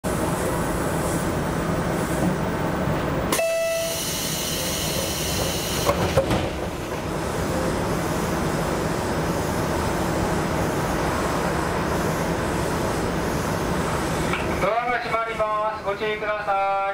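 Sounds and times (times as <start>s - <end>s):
idling train rumble: 0.0s - 16.9s
train door release with tone: 3.3s - 7.1s.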